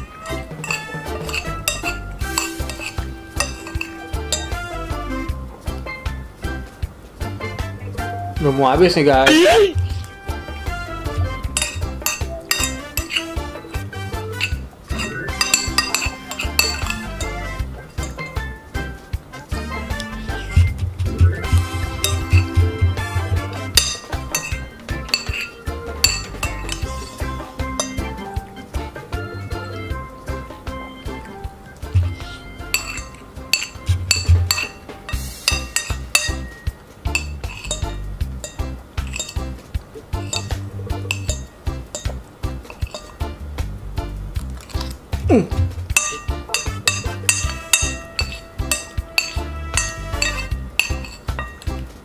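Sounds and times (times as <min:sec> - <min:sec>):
cutlery clinking on a plate: 0:00.0 - 0:05.0, 0:09.2 - 0:10.1, 0:11.1 - 0:19.0, 0:21.4 - 0:28.6, 0:30.8 - 0:43.4, 0:44.4 - 0:45.0, 0:45.9 - 0:51.9
background music: 0:00.0 - 0:52.0.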